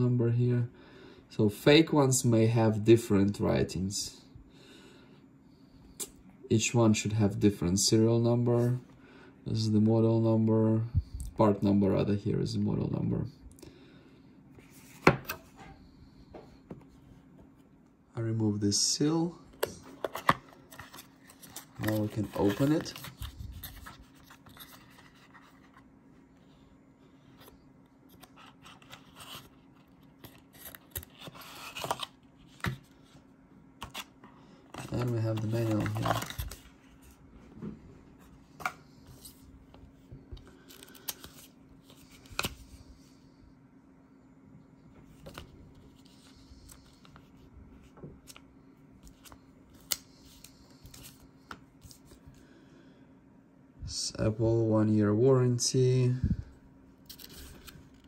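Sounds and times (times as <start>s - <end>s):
paper rustling: 19.8s - 25.8s, 34.7s - 37.2s.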